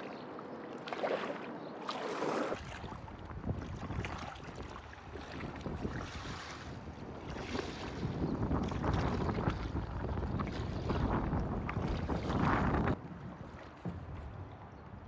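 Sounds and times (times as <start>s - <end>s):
paddle splashing in water: 0.0s - 14.8s
wind rumble on microphone: 2.6s - 15.0s.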